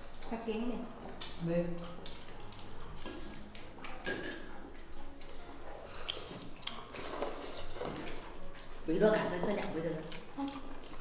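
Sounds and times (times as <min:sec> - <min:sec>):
dishes clinking: 0:03.9 - 0:04.9.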